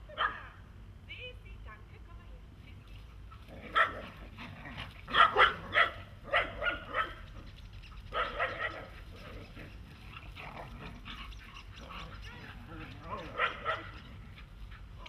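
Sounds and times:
dogs barking: 3.2 - 15.0.

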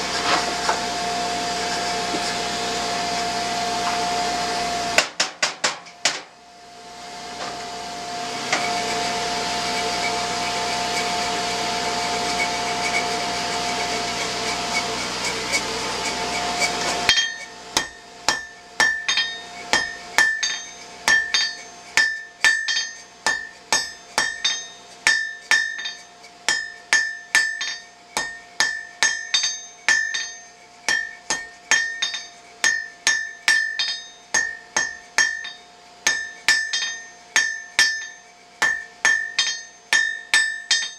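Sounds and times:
forge blower running: 0.0 - 40.9
hammer blows on anvil: 8.4 - 40.9.

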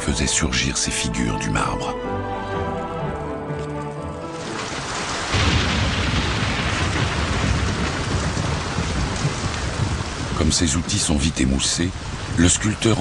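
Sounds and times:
music: 0.0 - 5.3
forge fire rushing: 4.4 - 13.0.

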